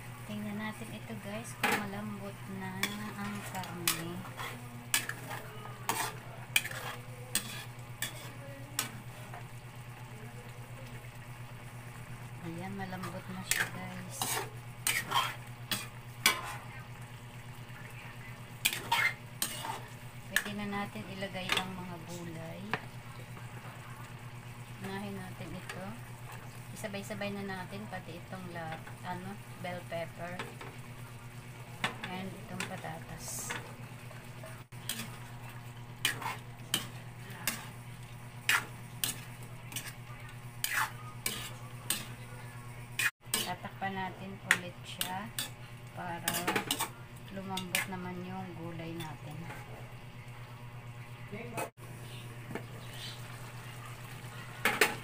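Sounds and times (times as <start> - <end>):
sauce simmering sizzle: 0.0 - 43.2, 51.8 - 55.0
steady low hum: 0.0 - 54.6
metal spoon scraping a wok: 2.8 - 8.9, 13.0 - 16.7, 18.6 - 20.6, 34.8 - 35.2, 36.0 - 37.7, 38.4 - 40.0, 40.6 - 42.2, 43.0 - 43.7, 44.5 - 45.6, 46.2 - 47.0, 47.6 - 48.0.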